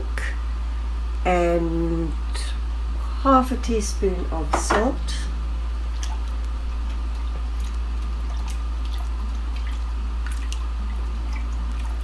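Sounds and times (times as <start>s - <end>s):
steady low hum: 0.0s - 12.0s
liquid swishing: 5.9s - 12.0s.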